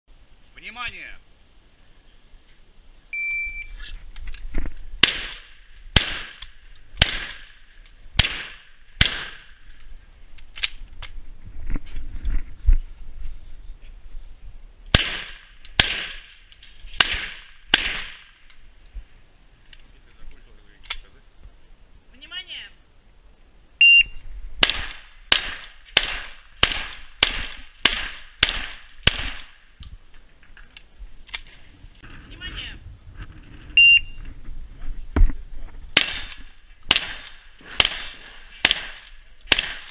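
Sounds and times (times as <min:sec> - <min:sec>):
shot timer beep: 0:03.2 - 0:03.7, 0:23.8 - 0:24.2
shotgun shots: 0:05.0 - 0:07.6, 0:08.2 - 0:09.6, 0:14.9 - 0:18.4, 0:24.6 - 0:29.6, 0:35.9 - 0:39.9.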